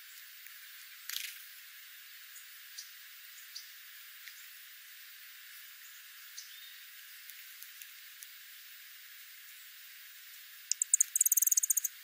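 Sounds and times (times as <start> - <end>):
steady hiss: 0.0 - 12.0
birds ticking on gravel: 10.7 - 12.0.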